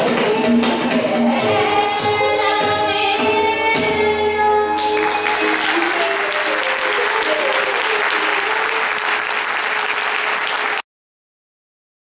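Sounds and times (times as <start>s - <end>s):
audience applauding: 4.8s - 10.9s.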